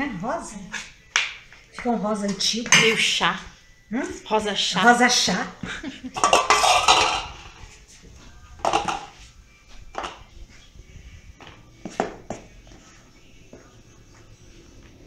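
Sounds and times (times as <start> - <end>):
metal spoon scraping a steel bowl: 6.2 - 7.6.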